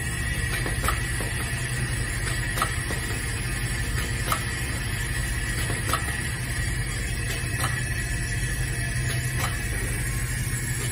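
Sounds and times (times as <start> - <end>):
sharp mechanical clicks: 0.4 - 1.6, 2.2 - 3.2, 3.9 - 4.7, 5.5 - 6.3, 7.2 - 8.0, 9.0 - 9.8.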